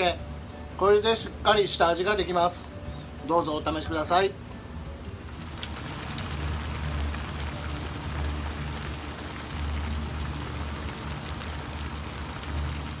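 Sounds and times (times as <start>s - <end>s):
food sizzling in frying pan: 5.2s - 13.0s.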